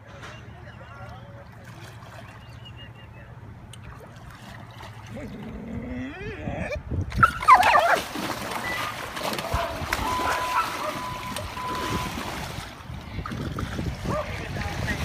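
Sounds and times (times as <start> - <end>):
dog yelping: 7.2 - 8.0, 10.0 - 11.2
dog splashing in water: 7.2 - 12.8.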